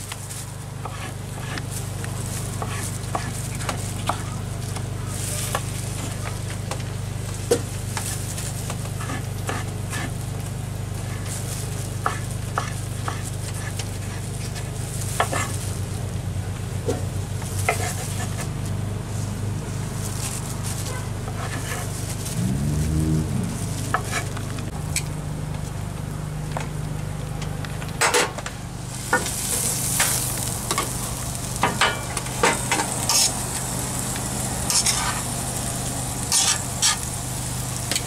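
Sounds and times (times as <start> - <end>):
steady low hum: 0.0 - 38.0.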